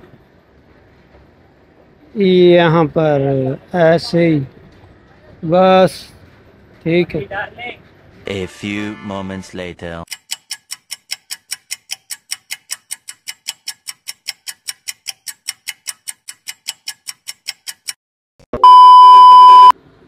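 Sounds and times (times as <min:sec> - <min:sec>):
sharp ticking: 0:10.1 - 0:18.0
steady beep tone: 0:18.6 - 0:19.8.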